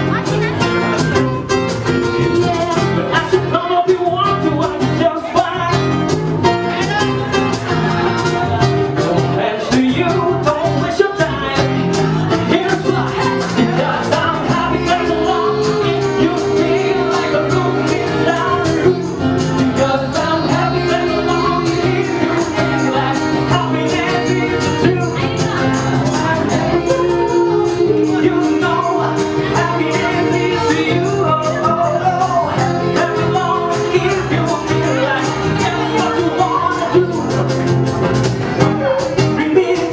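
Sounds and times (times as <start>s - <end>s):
acoustic guitar: 0.0s - 39.9s
bass: 0.0s - 39.9s
hand percussion: 0.0s - 39.9s
man singing: 0.0s - 39.9s
woman singing: 9.4s - 37.4s.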